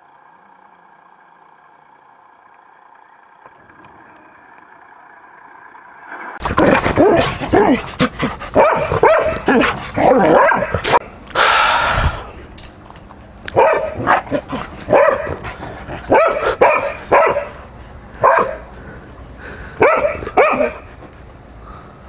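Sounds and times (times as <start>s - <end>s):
dog barking: 6.4s - 11.0s, 13.5s - 17.6s, 18.2s - 18.7s, 19.8s - 20.9s.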